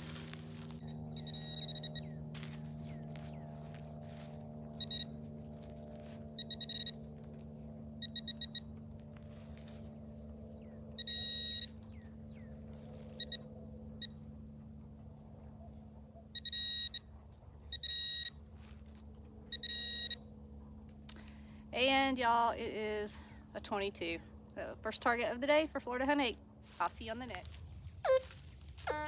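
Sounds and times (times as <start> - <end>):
metal detector beeping: 0.0 - 7.2, 8.0 - 8.8, 11.0 - 11.8, 13.1 - 14.2, 16.4 - 17.1, 17.7 - 18.4, 19.5 - 20.2
faint low hum: 0.0 - 29.0.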